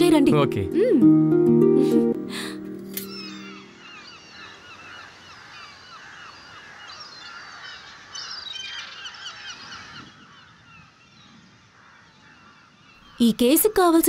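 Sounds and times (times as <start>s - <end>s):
flock of birds calling: 3.1s - 14.0s.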